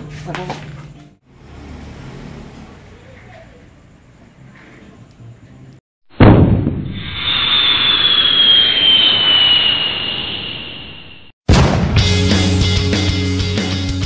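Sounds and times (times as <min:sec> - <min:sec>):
whoosh with falling whistle: 0:06.8 - 0:11.3.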